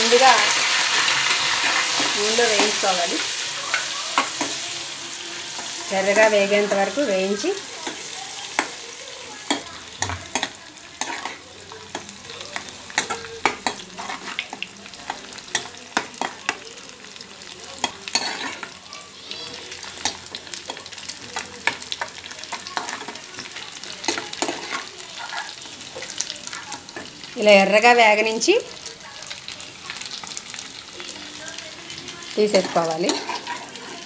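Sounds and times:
fish sizzling in hot oil: 0.0s - 34.0s
metal spoon scraping pan: 0.1s - 8.8s, 9.4s - 16.5s, 17.8s - 18.8s, 24.0s - 27.1s, 32.4s - 34.0s.

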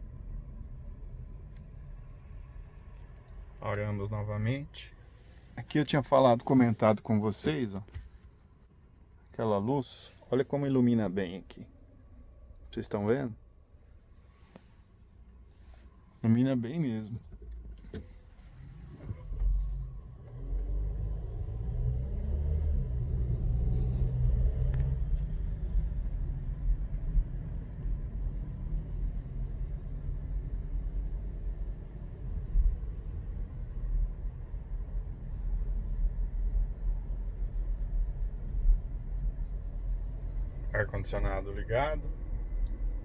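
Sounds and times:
car cabin rumble while driving: 14.2s - 43.0s.

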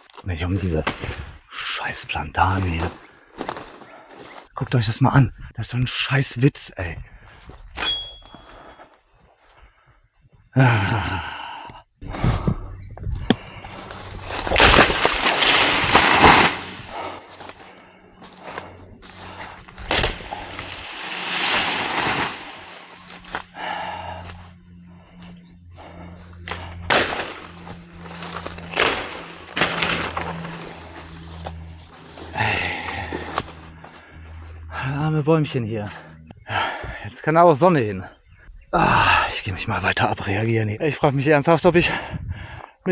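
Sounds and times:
stalks and leaves falling: 13.6s - 24.4s, 26.5s - 33.8s
chopping blows on plants: 19.8s - 20.7s, 26.5s - 27.7s, 28.3s - 30.4s.

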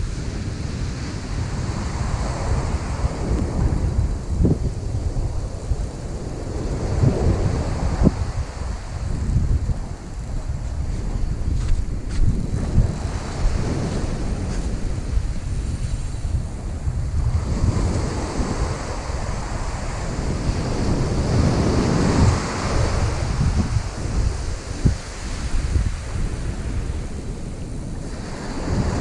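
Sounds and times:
ocean surf washing up beach: 0.0s - 29.0s
wind buffeting microphone: 0.0s - 29.0s.

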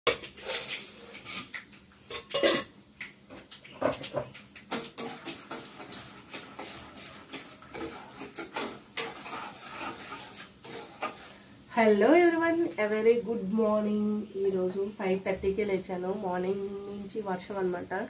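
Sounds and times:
dishes and utensils clinking: 0.1s - 2.7s, 3.4s - 11.2s.

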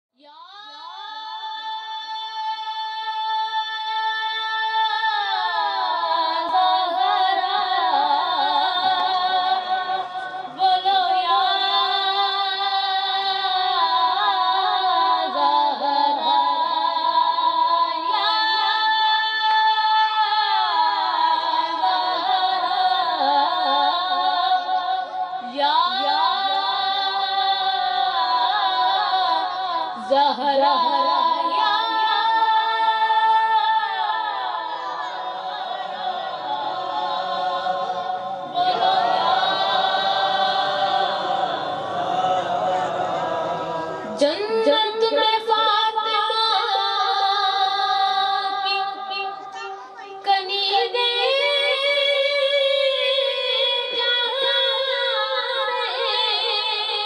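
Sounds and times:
boy singing devotional song: 0.2s - 57.0s.

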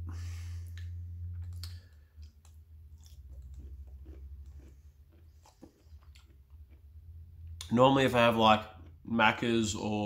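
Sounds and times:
person chewing pickle crunches: 0.7s - 7.7s.

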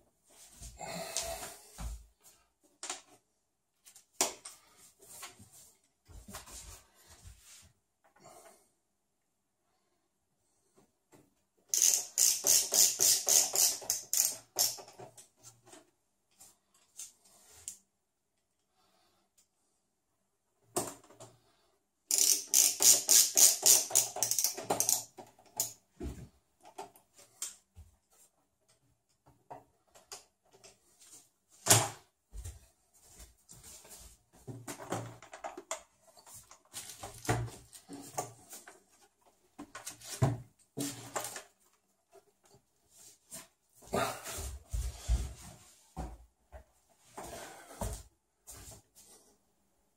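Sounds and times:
ratcheting screwdriver clicking: 11.7s - 14.9s, 22.1s - 25.8s.

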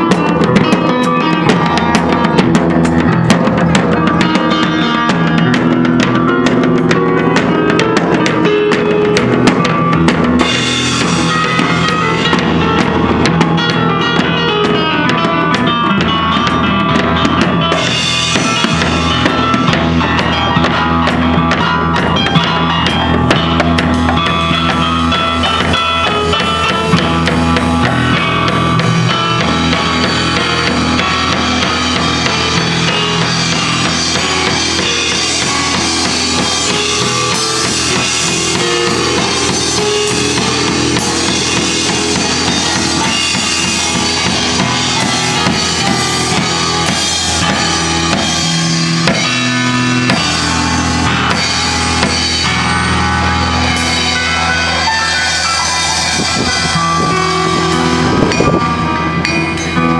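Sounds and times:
digital piano playing: 0.0s - 59.9s
drum kit beat: 0.0s - 59.9s.

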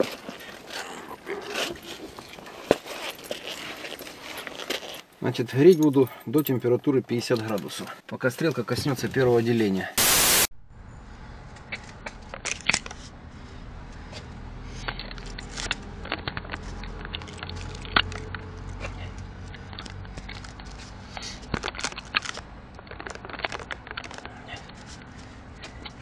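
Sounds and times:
sharp crackles and clicks: 14.9s - 18.8s, 19.4s - 24.4s.

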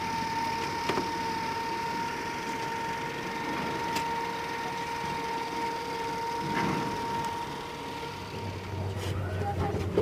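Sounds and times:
motorboat engine idling: 0.0s - 10.0s.

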